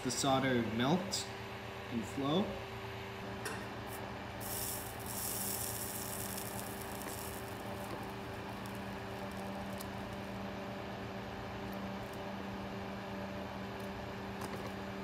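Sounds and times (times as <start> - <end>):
fan humming: 0.0 - 15.0
soldering iron sizzling hiss: 3.9 - 10.8.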